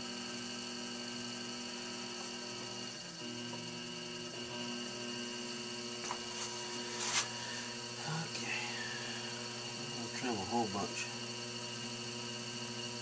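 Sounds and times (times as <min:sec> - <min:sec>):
potter's wheel hum: 0:00.0 - 0:13.0.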